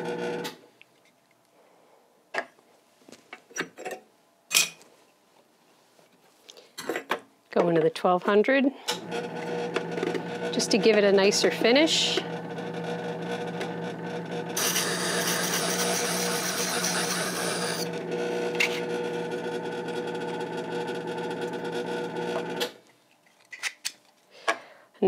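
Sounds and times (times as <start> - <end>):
sharpening motor hum: 9.1 - 19.4
metal grinding on diamond disk: 13.4 - 18.0.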